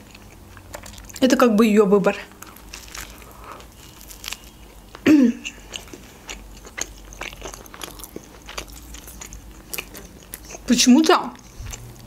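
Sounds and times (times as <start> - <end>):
chewing pizza: 0.0 - 1.5, 2.2 - 12.0.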